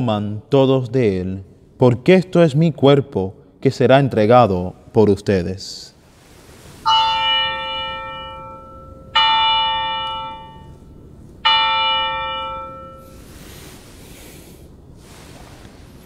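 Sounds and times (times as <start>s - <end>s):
altar bell ringing: 6.8s - 13.2s.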